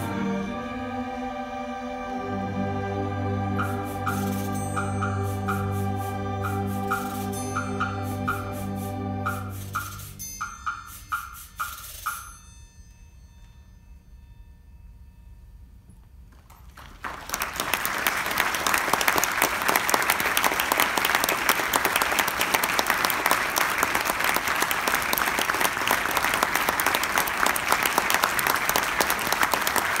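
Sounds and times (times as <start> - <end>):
audience applauding: 16.6 - 30.0.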